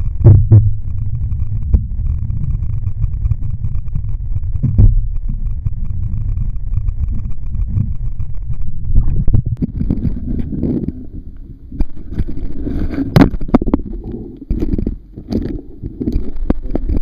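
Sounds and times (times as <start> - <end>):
muffled underwater rumble: 0.0 - 17.0
knocks and scrapes on camera: 4.6 - 17.0.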